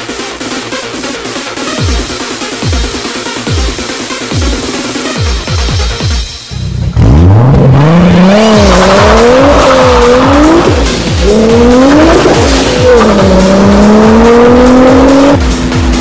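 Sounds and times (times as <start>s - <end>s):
fast kick-drum beat: 0.0s - 6.4s, 7.8s - 16.0s
electronic dance music: 0.0s - 16.0s.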